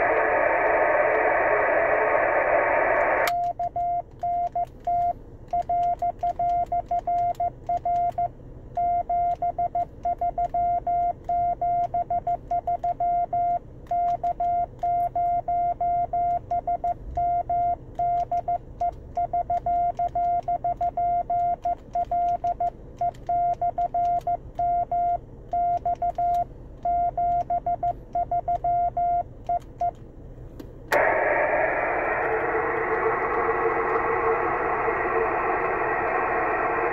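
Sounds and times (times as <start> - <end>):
loud radio hiss: 0.0 - 3.3, 30.9 - 36.9.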